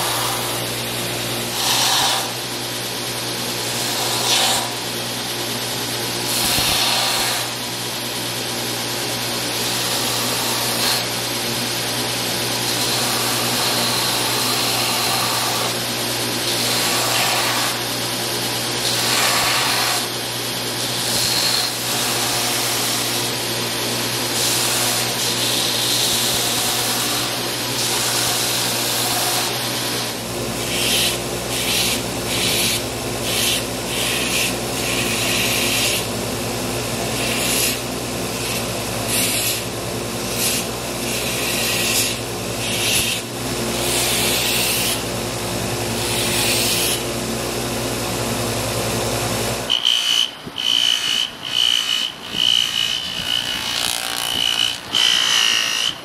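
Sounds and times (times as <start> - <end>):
wood sanding on belt: 0.0 - 0.6, 1.5 - 2.4, 3.8 - 4.8, 6.3 - 7.5, 12.7 - 15.8, 16.5 - 17.8, 18.9 - 20.1, 24.4 - 36.1, 37.0 - 37.8, 38.4 - 39.6, 40.3 - 43.2, 49.9 - 56.0
belt grinder humming: 0.0 - 2.6, 9.5 - 23.5, 24.4 - 47.1, 49.6 - 56.0.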